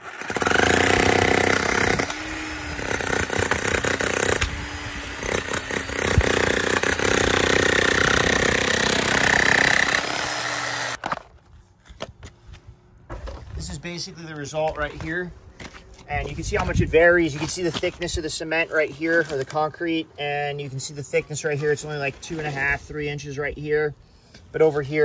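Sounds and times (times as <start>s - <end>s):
demolition hammer chiseling concrete: 0.0s - 11.0s.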